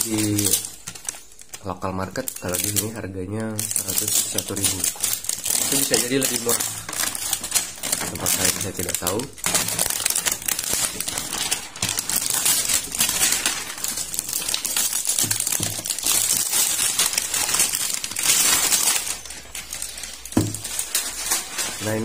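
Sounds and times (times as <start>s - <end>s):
plastic film crinkling: 0.0s - 22.0s.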